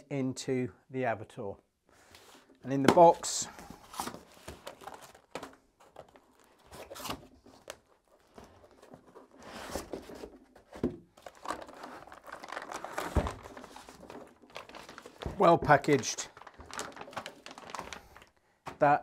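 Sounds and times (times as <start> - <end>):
packaging rustling and crinkling: 2.2 - 18.8
cardboard flaps scraping: 6.6 - 15.6.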